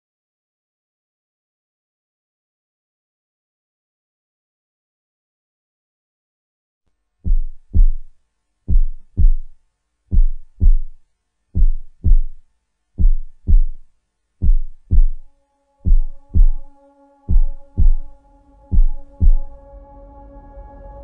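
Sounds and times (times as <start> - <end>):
heartbeat thumps: 7.2 - 12.4, 13.0 - 19.6.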